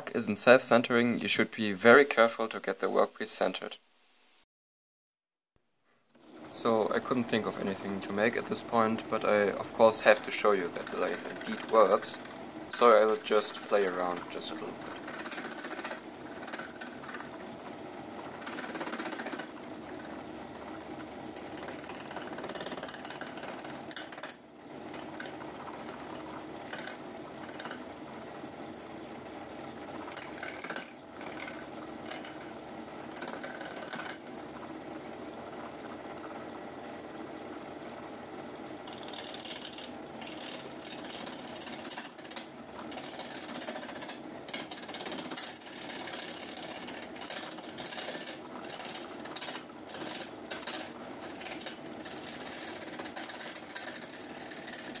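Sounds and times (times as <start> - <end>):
chisel scraping wood: 33.2 - 34.2.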